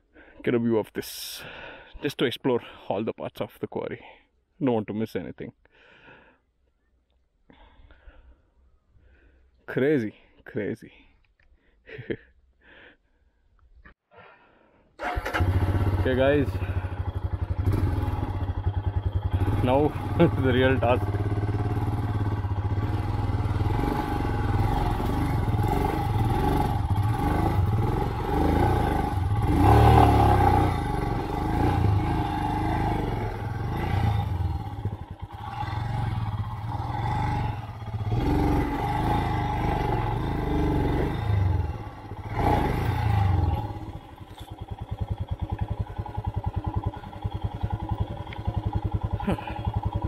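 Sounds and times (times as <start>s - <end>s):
motorcycle engine revving: 15.0s - 50.0s.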